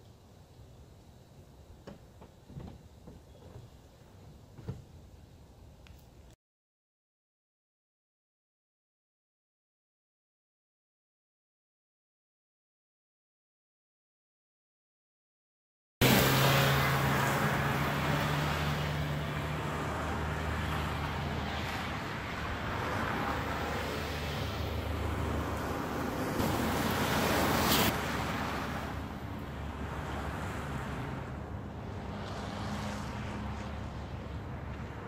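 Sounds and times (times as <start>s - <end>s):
car engine humming: 16.0s - 35.0s.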